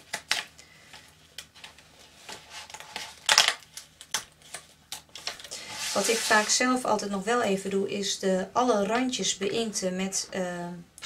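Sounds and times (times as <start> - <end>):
card paper crackling and rustling: 1.4 - 6.6.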